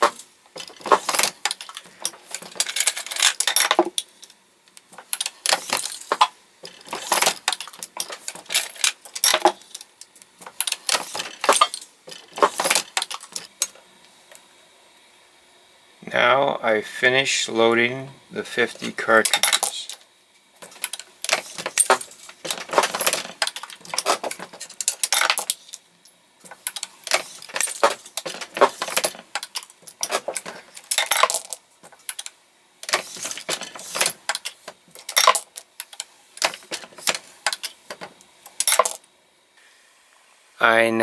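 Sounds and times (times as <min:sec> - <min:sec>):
reloading press clicking and rattling: 0:00.0 - 0:04.3, 0:05.0 - 0:09.9, 0:10.5 - 0:13.8, 0:20.6 - 0:25.8, 0:26.5 - 0:39.0
brass cases clinking: 0:00.0 - 0:04.4, 0:05.0 - 0:09.9, 0:10.5 - 0:13.8, 0:19.2 - 0:20.0, 0:20.6 - 0:39.1.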